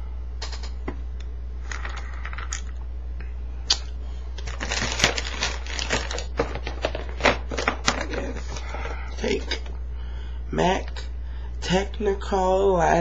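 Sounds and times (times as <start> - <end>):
steady low hum: 0.0 - 13.0
plastic cases clicking and clattering: 4.4 - 8.7.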